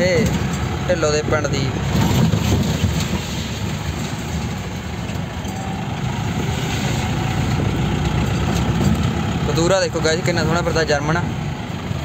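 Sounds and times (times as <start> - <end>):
jeep engine droning: 0.0 - 12.0.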